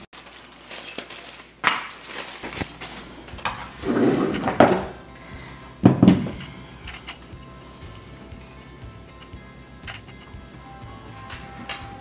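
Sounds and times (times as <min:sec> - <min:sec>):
plastic bag crinkling: 0:00.0 - 0:03.8
plastic parts knocking on wooden floor: 0:03.4 - 0:05.0, 0:05.8 - 0:06.6.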